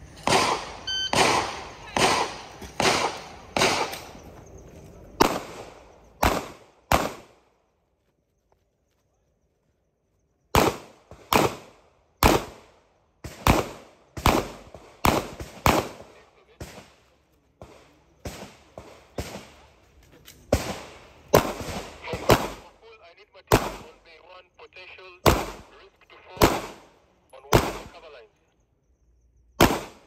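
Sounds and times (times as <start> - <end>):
pistol shots: 0.2 - 4.2, 5.2 - 7.4, 10.5 - 17.0, 17.6 - 19.6, 20.5 - 22.7, 23.5 - 24.1, 25.2 - 28.2, 29.6 - 30.0.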